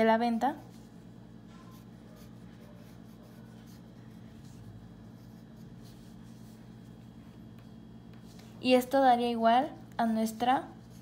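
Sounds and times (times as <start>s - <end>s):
steady low hum: 0.0s - 11.0s
pen scratching on paper: 1.6s - 6.7s.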